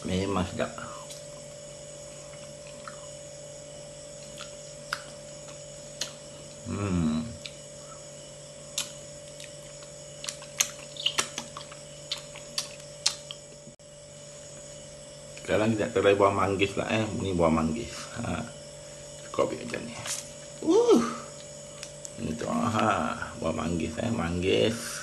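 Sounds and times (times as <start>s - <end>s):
steady electrical hum: 0.0s - 25.0s
quiet eating sounds: 0.6s - 15.6s, 17.9s - 23.7s
man voicing mm: 6.6s - 7.4s.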